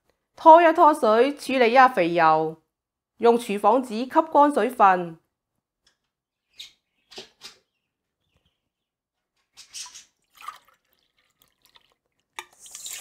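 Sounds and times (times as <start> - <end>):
kitchen paper blotting wet chicken: 12.6 - 13.0.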